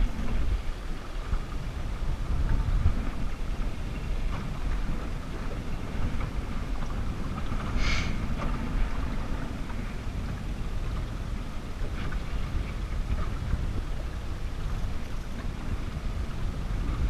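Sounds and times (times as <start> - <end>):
boat moving through choppy water: 0.0 - 17.0
wind buffeting microphone: 0.0 - 17.0.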